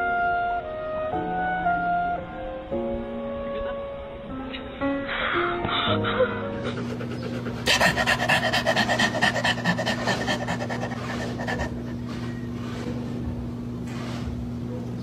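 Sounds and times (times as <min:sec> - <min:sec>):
quick panting: 0:06.6 - 0:12.3.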